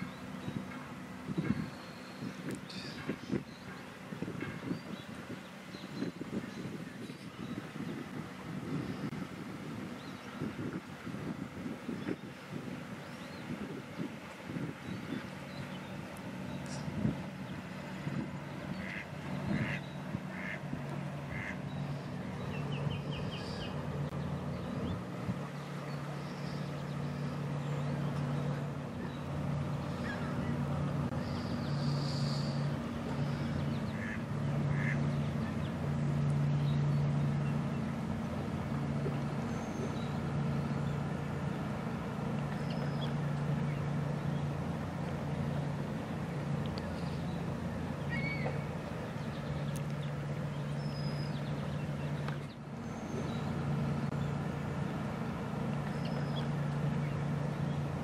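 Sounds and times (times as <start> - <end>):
motorboat engine hum: 0.0 - 58.0
short bird calls: 31.2 - 34.2, 48.0 - 49.8.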